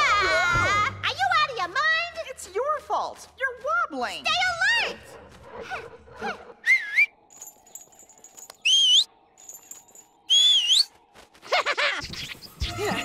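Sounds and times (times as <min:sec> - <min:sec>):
high-pitched rising whistle calls: 0:08.6 - 0:11.0.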